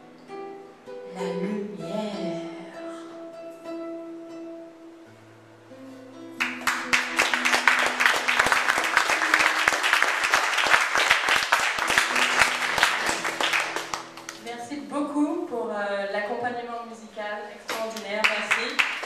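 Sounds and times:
acoustic guitar held notes: 0.0 - 15.4
audience applauding: 6.4 - 14.5, 17.7 - 19.0.

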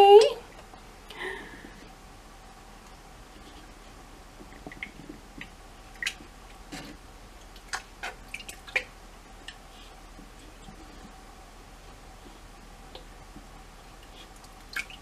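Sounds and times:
water dripping and plopping: 4.4 - 6.3, 7.4 - 9.6, 14.0 - 15.0.

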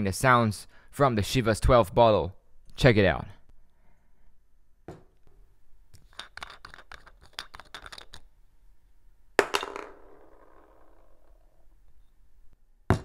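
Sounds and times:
glass bottle clicks and scratches: 6.0 - 8.3.

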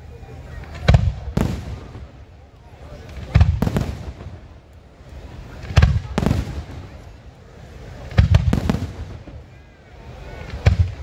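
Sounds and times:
fireworks booming: 0.6 - 2.3, 3.0 - 4.6, 5.5 - 9.6, 10.3 - 11.0.

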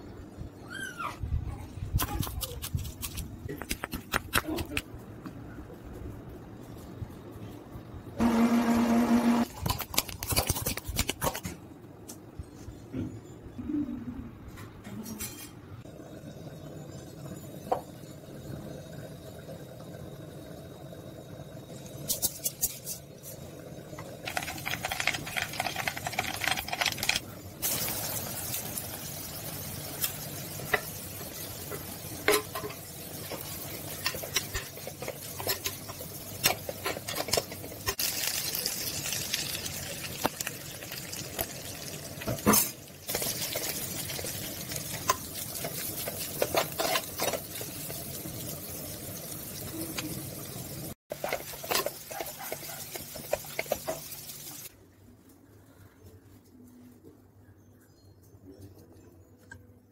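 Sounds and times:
meat sizzling in oil: 27.6 - 36.9, 37.7 - 54.7
spatula scraping a pan: 44.8 - 48.0, 51.1 - 54.4.

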